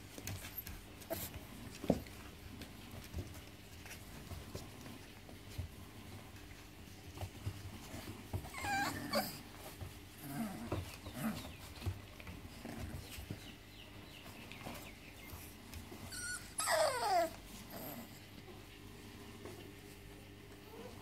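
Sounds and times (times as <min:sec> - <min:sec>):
puppies making small noises: 0:00.0 - 0:21.0
puppy yelp: 0:08.5 - 0:09.4, 0:16.1 - 0:17.4.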